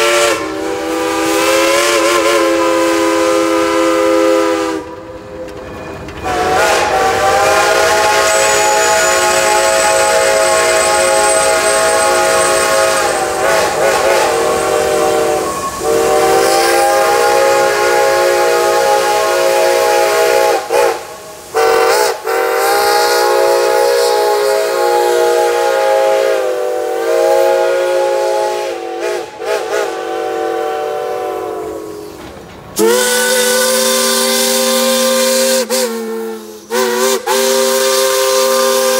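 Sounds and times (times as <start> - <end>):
steam whistle blasts: 0.0 - 5.0, 6.2 - 32.2, 32.8 - 38.9
lower-pitched steam whistle: 0.0 - 32.2, 32.8 - 38.9
warbling steam whistle: 0.0 - 32.2, 32.8 - 38.9.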